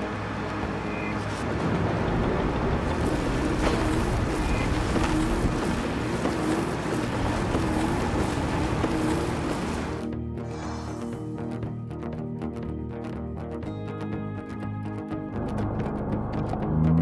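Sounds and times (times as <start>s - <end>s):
steady rushing noise: 0.0s - 11.1s
wavering low tone: 16.0s - 17.0s.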